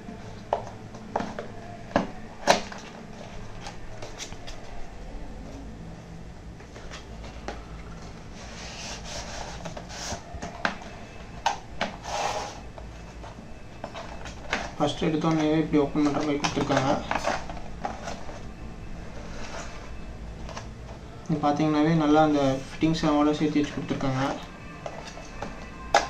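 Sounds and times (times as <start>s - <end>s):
paper sleeve scraping and rustling: 8.3s - 10.3s.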